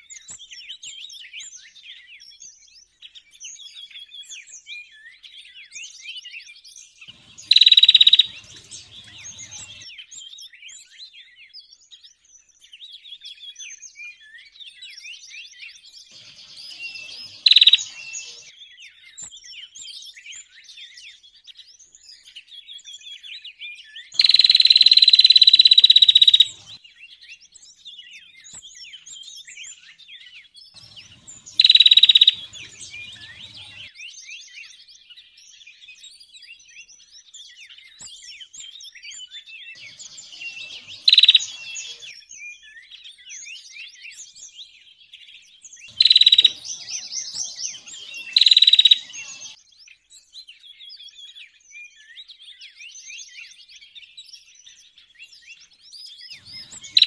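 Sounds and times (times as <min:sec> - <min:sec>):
songbirds chirping: 0:06.8 - 0:10.0, 0:15.8 - 0:18.8, 0:24.1 - 0:27.9, 0:30.7 - 0:34.2, 0:38.9 - 0:42.6, 0:44.2 - 0:50.1, 0:55.6 - 0:57.0
high buzzing bird trill: 0:07.1 - 0:09.8, 0:16.1 - 0:18.5, 0:24.2 - 0:26.8, 0:30.8 - 0:33.9, 0:39.8 - 0:42.2, 0:45.9 - 0:49.6, 0:56.4 - 0:57.0.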